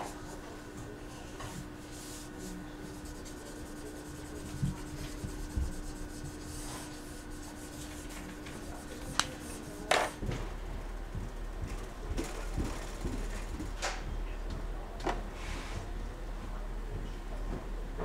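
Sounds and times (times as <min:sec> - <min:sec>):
steady low hum: 0:00.0 - 0:18.0
marker scratching on paper: 0:01.5 - 0:10.2.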